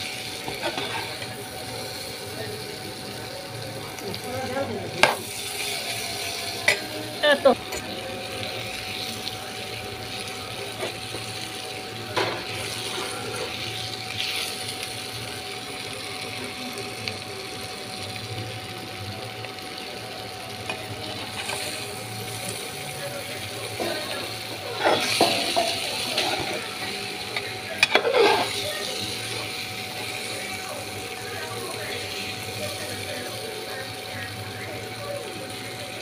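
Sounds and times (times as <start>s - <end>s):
vegetables sizzling in a pan: 0.0s - 36.0s
metal spatula scraping a pan: 0.5s - 1.3s, 24.0s - 26.6s, 27.8s - 28.6s.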